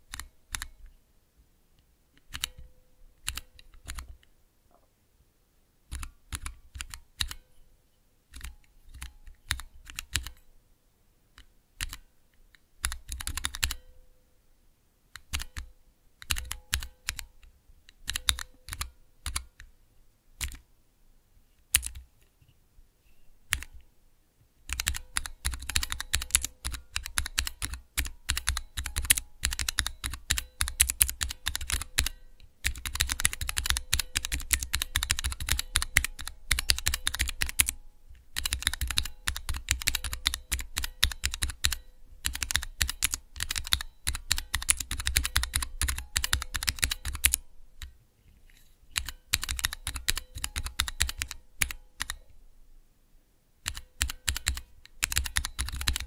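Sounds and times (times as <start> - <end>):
mechanical keyboard typing: 0.1 - 0.7, 2.2 - 2.6, 3.2 - 4.1, 5.9 - 7.4, 8.3 - 10.4, 11.8 - 12.0, 12.8 - 13.8, 15.2 - 17.3, 18.0 - 19.5, 20.4 - 20.6, 21.8 - 22.0, 23.5 - 23.7, 24.7 - 37.8, 38.4 - 47.9, 49.0 - 52.2, 53.6 - 56.0.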